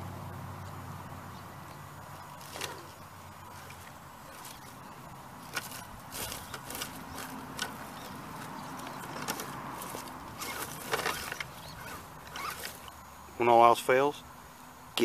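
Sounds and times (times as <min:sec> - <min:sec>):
twigs crackling under tires: 0:01.4 - 0:13.7
electric motor whine: 0:02.1 - 0:13.1.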